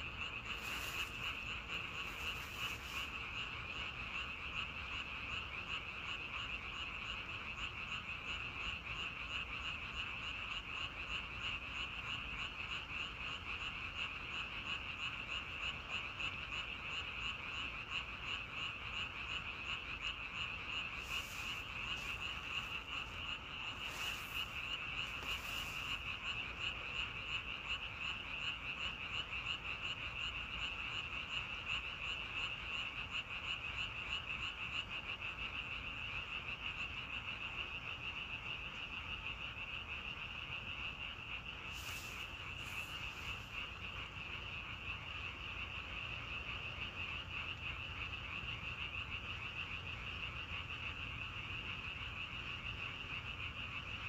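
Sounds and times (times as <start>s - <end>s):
chorus of frogs trilling: 0.0s - 54.0s.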